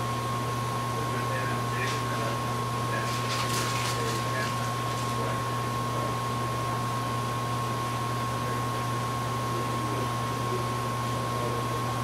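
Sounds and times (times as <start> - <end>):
electrical hum: 0.0 - 12.0
faint rustles and clicks: 3.0 - 5.3.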